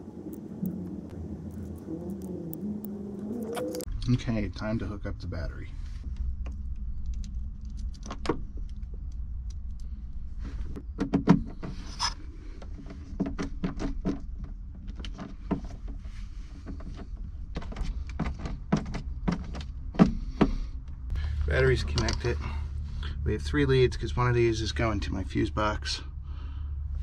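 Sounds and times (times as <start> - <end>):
low hum: 0.0 - 10.8, 20.6 - 27.0.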